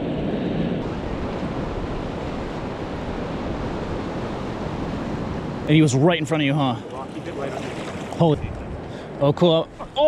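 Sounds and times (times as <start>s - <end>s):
wind on microphone: 0.0s - 5.7s
ocean surf on rocks: 0.0s - 10.0s.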